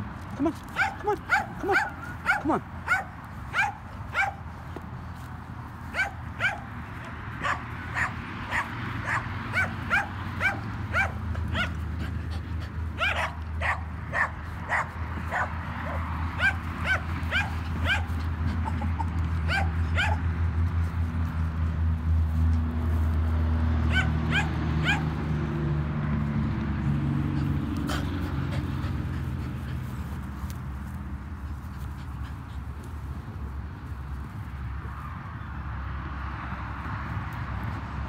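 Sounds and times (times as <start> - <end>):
puppies yipping: 0.7 - 4.4, 5.9 - 20.3, 23.8 - 25.1.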